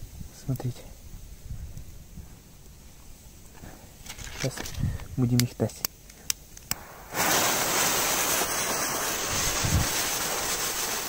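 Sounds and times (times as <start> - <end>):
spinner firework hissing: 6.1 - 11.0.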